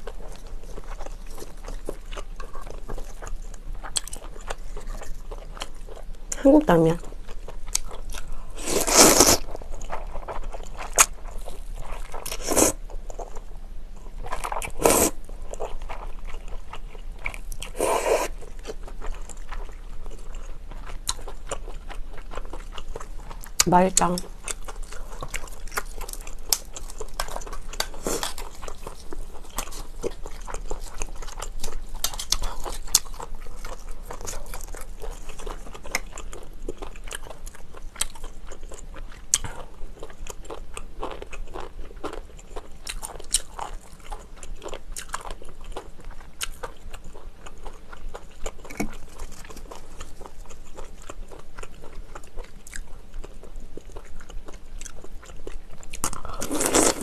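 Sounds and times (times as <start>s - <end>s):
chewing shellfish: 0.0s - 57.0s.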